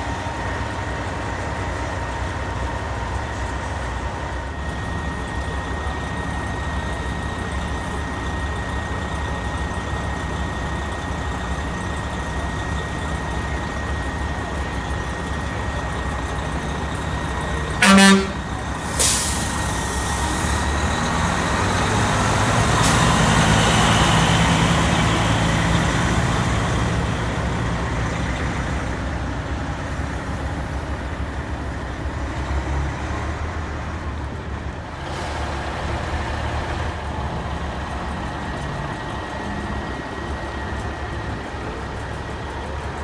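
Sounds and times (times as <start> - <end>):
diesel truck engine running: 0.0 - 43.0
air brake hiss: 18.8 - 20.6.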